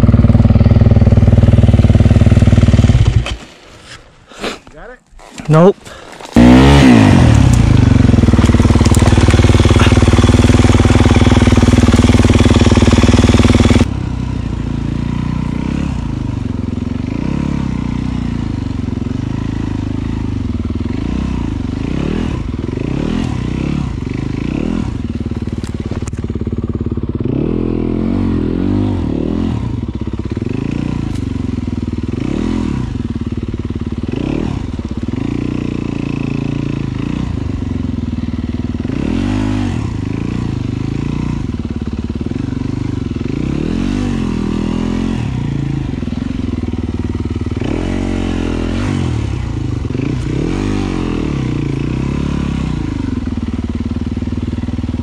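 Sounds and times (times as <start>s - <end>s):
dirt bike engine revving: 0.0s - 3.4s, 5.2s - 55.0s.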